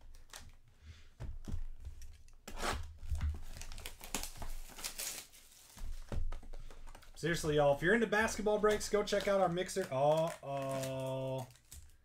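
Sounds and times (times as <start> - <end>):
wrapper tearing and crinkling: 2.5 - 6.1, 7.3 - 12.0.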